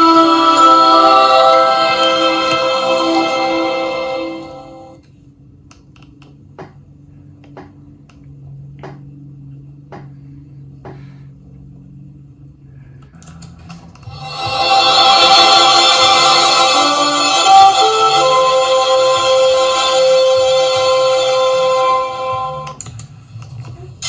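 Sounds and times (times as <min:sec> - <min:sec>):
music from a tv: 0:00.0 - 0:05.0, 0:13.5 - 0:24.0
low steady hum: 0:00.0 - 0:24.0.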